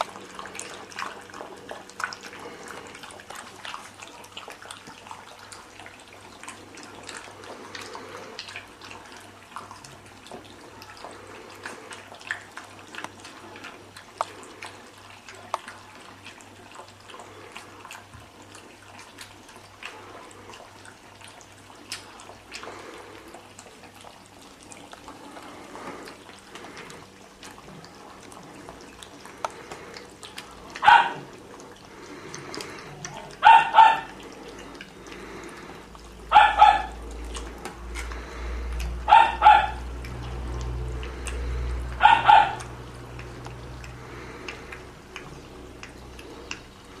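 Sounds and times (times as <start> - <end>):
puppies lapping milk: 0.0 - 47.0
dog yipping: 30.8 - 31.2, 33.4 - 34.1, 36.3 - 37.0, 39.1 - 39.8, 42.0 - 42.7.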